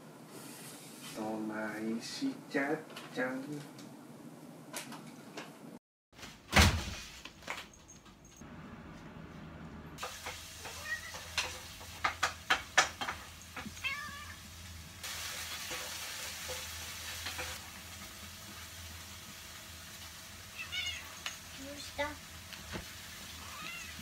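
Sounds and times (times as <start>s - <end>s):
cat meowing: 10.7s - 11.3s, 13.7s - 14.4s, 20.5s - 21.1s, 23.4s - 24.0s
sharp knocks and clicks: 11.3s - 13.7s.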